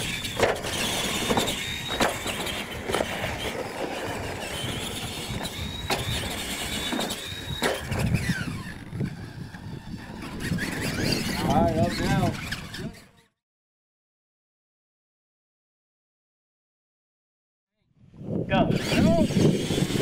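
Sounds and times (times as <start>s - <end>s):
electric motors whining: 0.0s - 13.2s, 18.6s - 20.0s.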